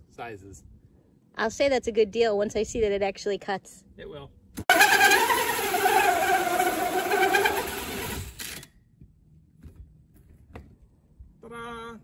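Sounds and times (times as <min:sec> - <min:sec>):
drill hole saw grinding plastic: 0:04.7 - 0:08.6.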